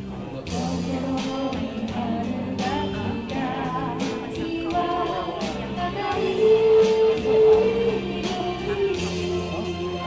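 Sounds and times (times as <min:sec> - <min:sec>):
backing track with drum beat: 0:00.0 - 0:10.0
woman singing karaoke: 0:00.4 - 0:10.0.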